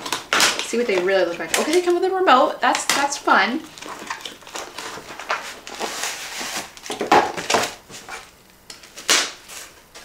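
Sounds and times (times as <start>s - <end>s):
cardboard box rustling: 3.7s - 8.3s.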